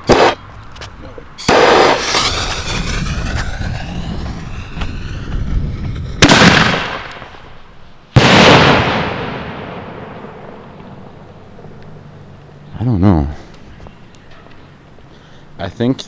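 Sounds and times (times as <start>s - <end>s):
mortar launch rush: 1.5s - 7.3s.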